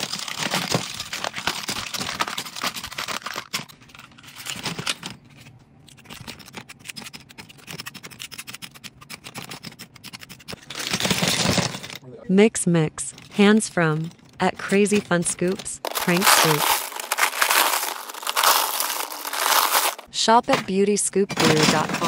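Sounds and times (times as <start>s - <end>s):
plastic tubes clattering: 0.0s - 5.3s, 14.2s - 20.1s, 21.3s - 22.0s.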